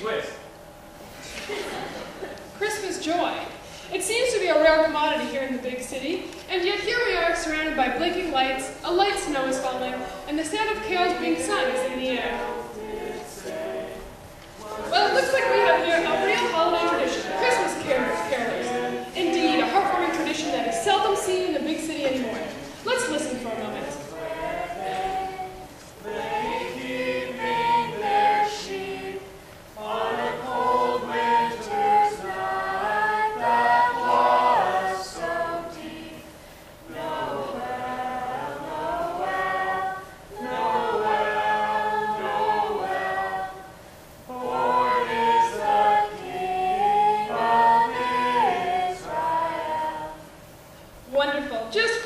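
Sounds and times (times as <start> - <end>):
group singing a carol in harmony: 9.1 - 50.7.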